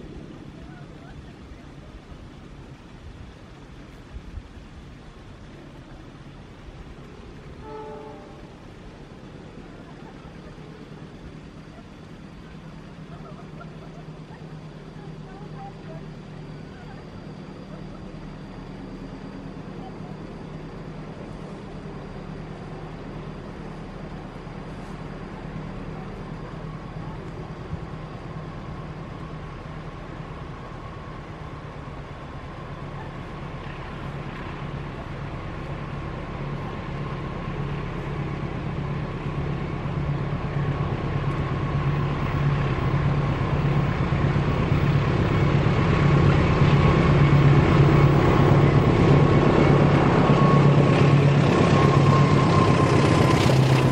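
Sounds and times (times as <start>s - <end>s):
diesel locomotive engine throbbing: 0.0s - 53.9s
faint whine: 0.0s - 53.9s.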